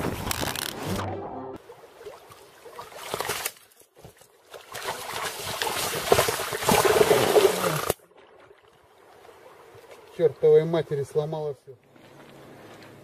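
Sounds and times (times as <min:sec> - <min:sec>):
person wading in water: 0:00.8 - 0:10.3, 0:11.8 - 0:13.0
fish thrashing and splashing: 0:01.7 - 0:08.4.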